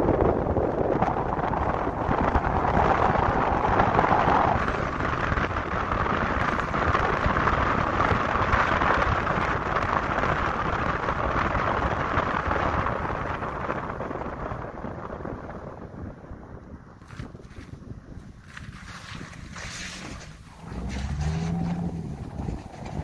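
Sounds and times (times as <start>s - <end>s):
tyre and road noise: 0.0s - 23.0s
wind buffeting microphone: 0.0s - 23.0s.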